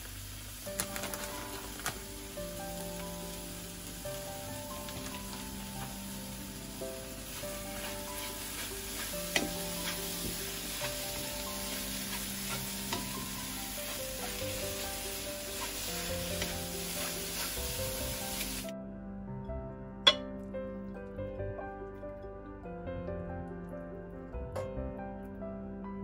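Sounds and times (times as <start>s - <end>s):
eggs sizzling in frying pan: 0.0s - 18.7s
spatula scraping pan: 7.3s - 18.5s
spatula tapping pan: 7.4s - 18.2s.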